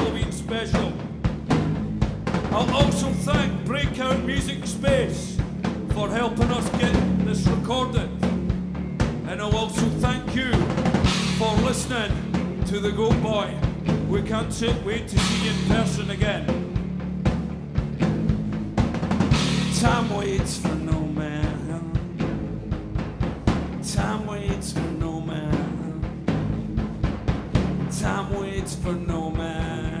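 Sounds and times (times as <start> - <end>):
bass guitar: 0.0 - 30.0
drum kit beat: 0.0 - 30.0
electric guitars: 0.0 - 30.0
person singing: 9.3 - 16.5, 19.6 - 22.4, 23.9 - 26.4, 27.9 - 30.0.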